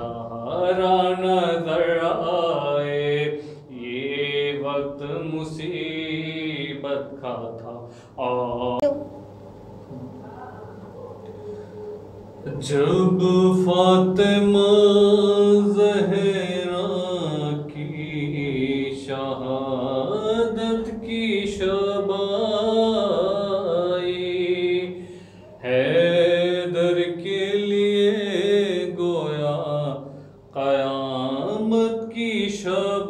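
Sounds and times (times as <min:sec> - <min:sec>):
man singing unaccompanied lament: 0:00.0 - 0:08.9, 0:12.5 - 0:25.0, 0:25.6 - 0:33.0.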